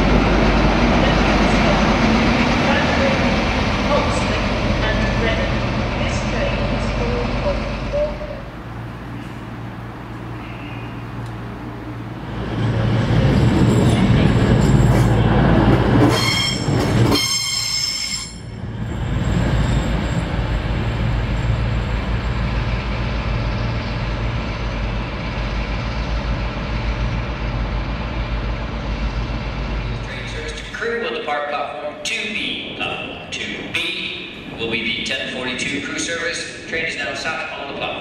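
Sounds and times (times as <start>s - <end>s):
diesel engines running: 0.0s - 17.2s, 18.5s - 38.0s
train running noise: 0.0s - 38.0s
metallic wheel squeal: 16.1s - 20.4s.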